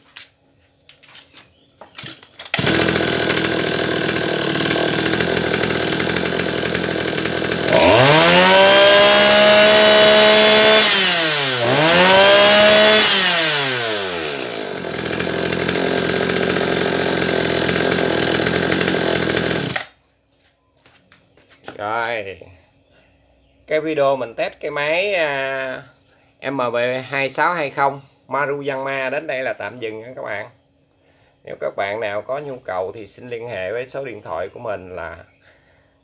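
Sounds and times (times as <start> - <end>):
brush cutter engine idling and revving: 2.4 - 19.9.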